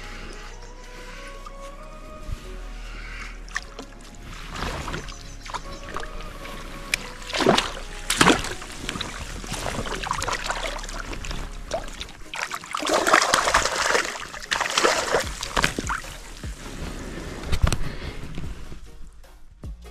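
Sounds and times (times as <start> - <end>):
landing net scooping water: 3.4 - 17.9
fish thrashing and splashing: 3.5 - 16.7.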